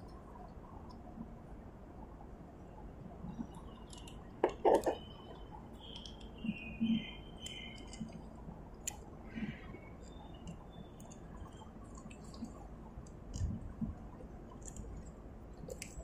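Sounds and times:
clicks and rustles of wiring work: 0:03.3 - 0:16.0
faint high chirps: 0:04.9 - 0:08.1.

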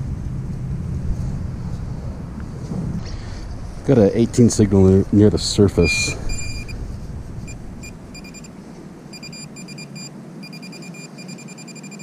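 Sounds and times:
metal detector pinpointer beeping: 0:06.3 - 0:06.8, 0:07.5 - 0:08.5, 0:09.1 - 0:12.0.

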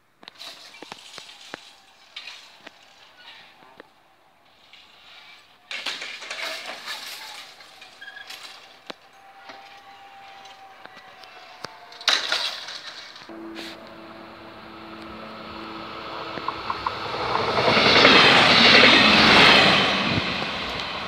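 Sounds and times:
steady humming tone: 0:13.3 - 0:17.2
rush of noise: 0:13.3 - 0:21.0.

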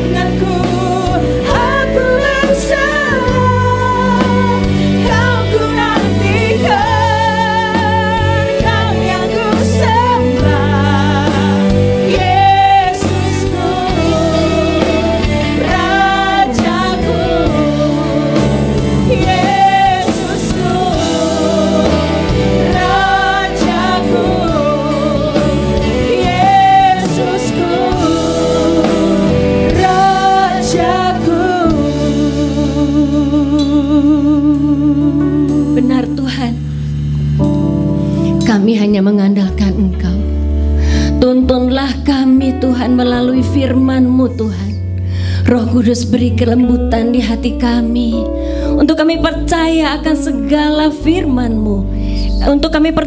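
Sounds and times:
women singing gospel: 0:00.0 - 0:36.6
drum kit with cymbals: 0:00.0 - 0:38.4.

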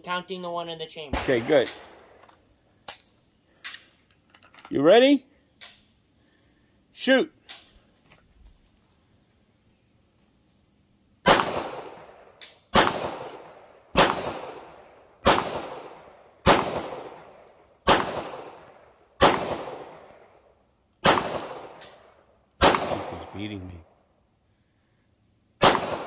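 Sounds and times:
pistol shots with echo: 0:01.1 - 0:02.2, 0:11.2 - 0:20.3, 0:21.0 - 0:23.8, 0:25.6 - 0:26.0.

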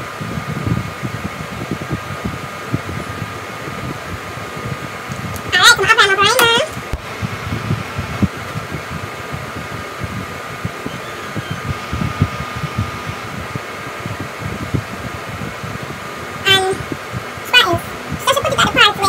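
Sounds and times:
room fan humming: 0:00.0 - 0:19.0
soft low thumps: 0:06.4 - 0:15.4.

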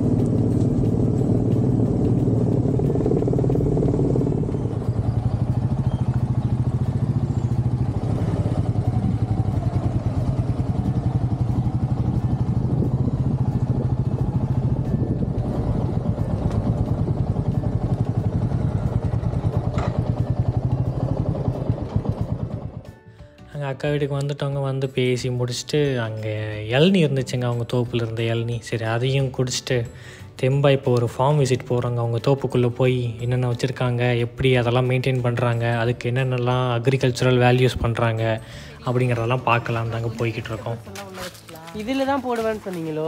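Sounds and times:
motorcycle engine running: 0:00.0 - 0:23.1, 0:32.5 - 0:42.6.

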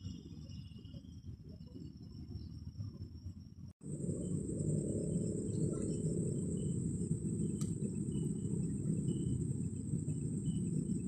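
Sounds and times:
crickets trilling: 0:00.0 - 0:11.0
steady low rumble: 0:00.0 - 0:11.0
low chirps: 0:03.8 - 0:11.0.

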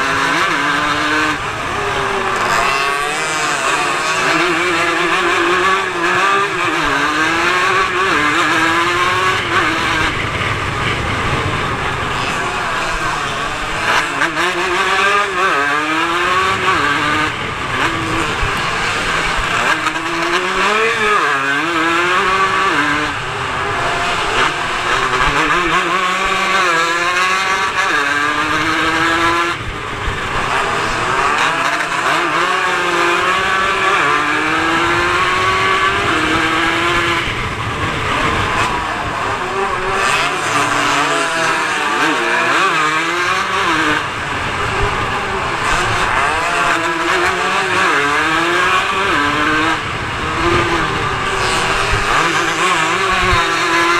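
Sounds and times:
racing motorcycle engine: 0:00.0 - 0:53.9.

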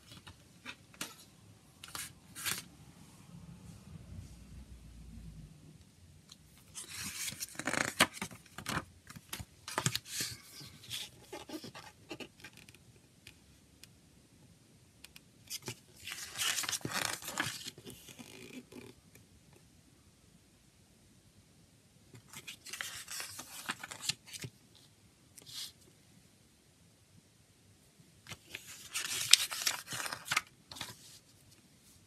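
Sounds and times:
paper rustling and crinkling: 0:01.8 - 0:02.7, 0:06.7 - 0:12.2, 0:15.6 - 0:18.4, 0:22.2 - 0:24.5, 0:28.3 - 0:31.6.

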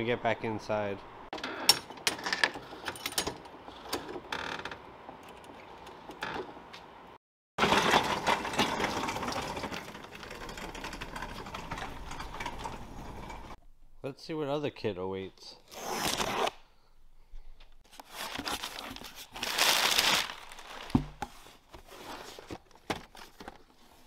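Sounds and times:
metal cart rattling: 0:07.6 - 0:13.6.

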